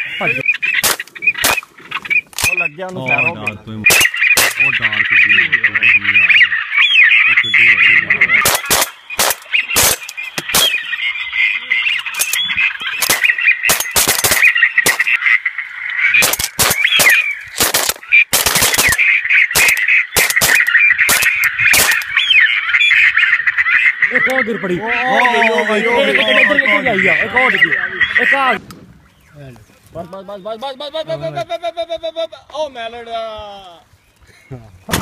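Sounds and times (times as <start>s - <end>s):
high-pitched duck calls: 0.0s - 28.6s
shotgun shots: 0.8s - 1.7s, 3.9s - 4.7s, 8.4s - 10.8s, 13.0s - 15.2s, 16.2s - 22.1s.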